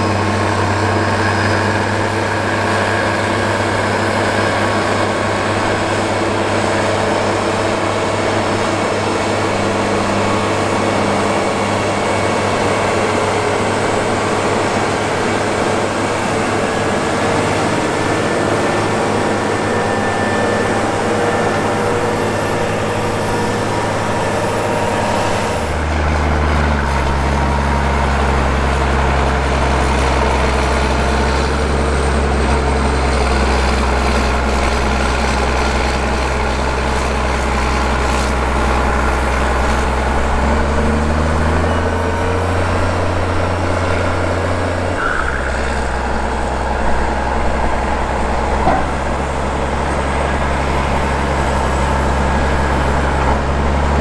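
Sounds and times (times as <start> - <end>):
heavy diesel tractor engines: 0.0 - 54.0.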